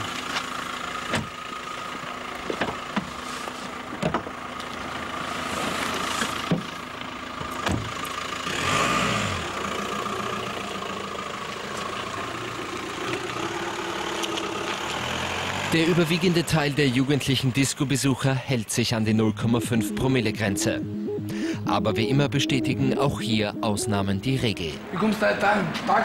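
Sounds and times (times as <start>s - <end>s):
car engine idling: 0.0s - 17.6s.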